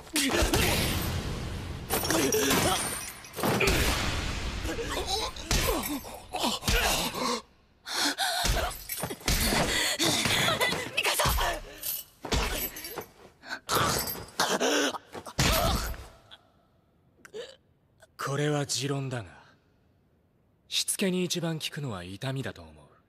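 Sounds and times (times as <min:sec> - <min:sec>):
pained grunts: 0:02.0 - 0:03.9, 0:04.6 - 0:11.0, 0:17.2 - 0:17.6.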